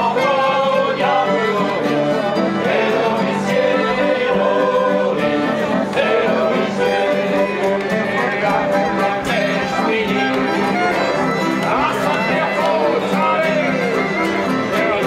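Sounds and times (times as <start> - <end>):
acoustic guitar folk tune: 0.0 - 15.0
voices singing: 0.0 - 15.0.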